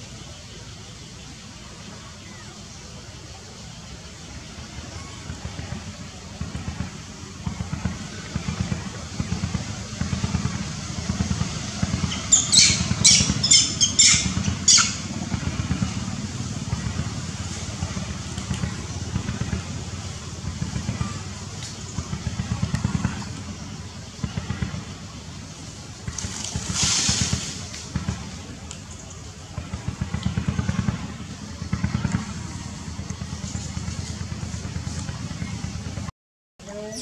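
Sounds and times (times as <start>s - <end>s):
low rumble: 3.8s - 36.1s
monkey squealing: 12.1s - 15.1s.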